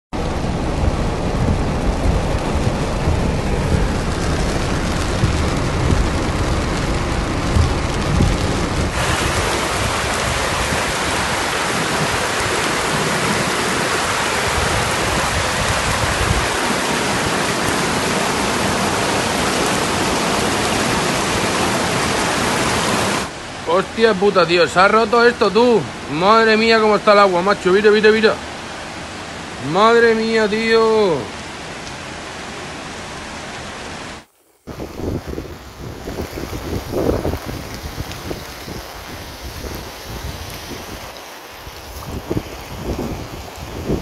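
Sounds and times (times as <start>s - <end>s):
low uneven rumble: 0.2s - 9.0s
heavy rain hissing: 0.2s - 44.0s
running water: 0.2s - 44.0s.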